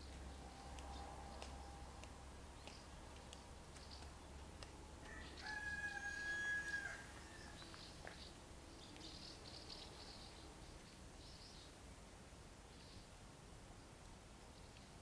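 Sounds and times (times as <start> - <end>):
small birds chirping: 0.0 - 6.0, 6.7 - 11.9, 13.8 - 15.0
distant rooster crowing: 5.0 - 7.7.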